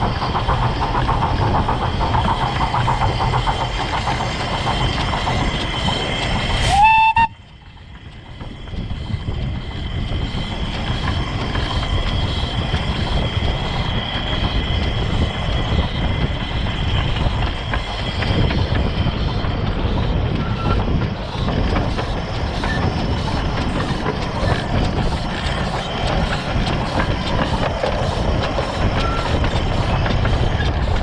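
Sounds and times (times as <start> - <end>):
steam locomotive running: 0.0 - 31.0
steam whistle blast: 6.7 - 7.4.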